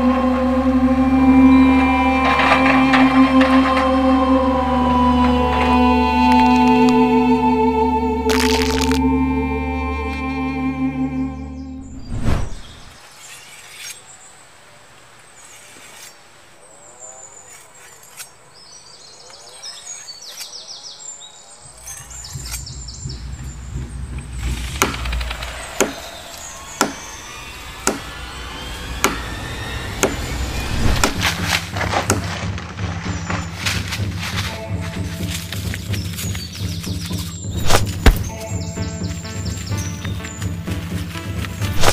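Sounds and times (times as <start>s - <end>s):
low droning music: 0.0s - 12.1s, 21.7s - 41.9s
faint bird chirps: 11.4s - 14.5s, 15.3s - 31.5s
machete chopping wood: 30.8s - 34.0s, 37.0s - 38.3s.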